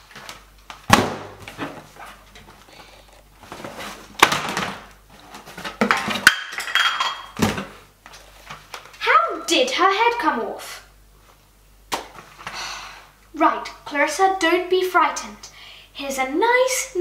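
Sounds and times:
cardboard rustling: 1.4 - 6.2.

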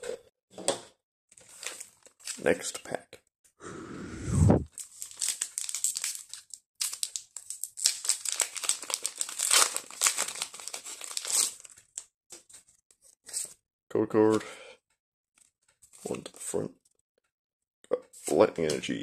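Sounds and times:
foil wrapper crinkling and tearing: 1.4 - 2.4, 4.7 - 12.1.

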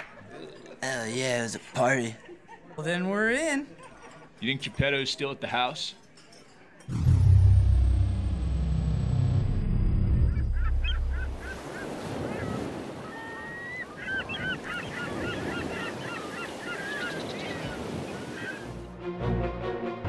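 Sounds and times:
seagulls calling: 10.1 - 18.8.

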